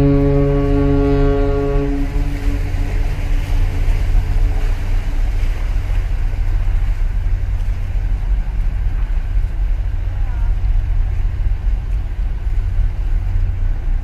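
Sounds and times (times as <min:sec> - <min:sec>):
ship horn blast: 0:00.0 - 0:04.9
ship low rumble: 0:00.0 - 0:14.0.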